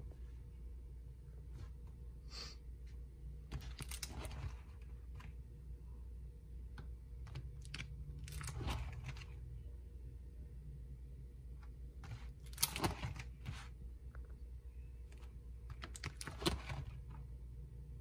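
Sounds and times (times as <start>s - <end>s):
plastic sleeve pages crinkling: 3.5s - 5.4s, 7.4s - 9.4s, 12.1s - 13.7s.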